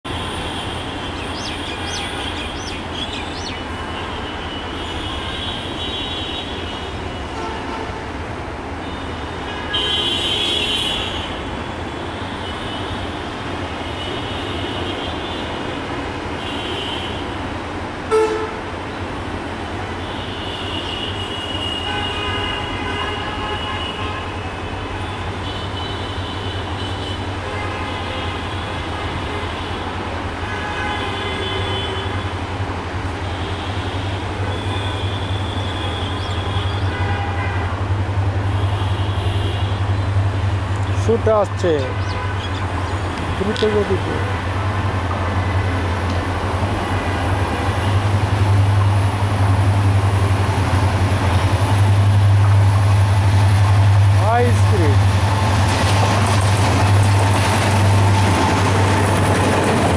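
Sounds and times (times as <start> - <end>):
high train horn: 4.3 - 8.2, 18.1 - 18.8, 20.0 - 32.5, 33.3 - 37.9
diesel train rumbling: 32.0 - 59.9.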